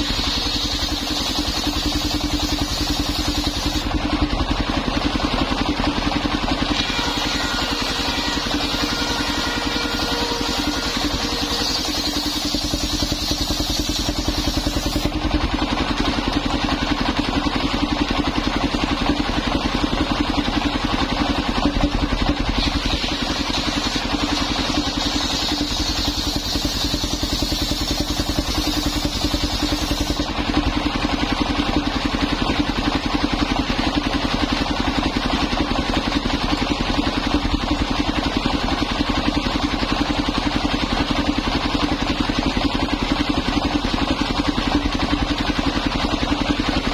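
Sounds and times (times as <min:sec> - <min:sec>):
saw blade cutting timber: 0:00.0 - 0:04.2, 0:05.2 - 0:16.7, 0:20.4 - 0:30.4
sawmill engine running: 0:00.0 - 0:46.9.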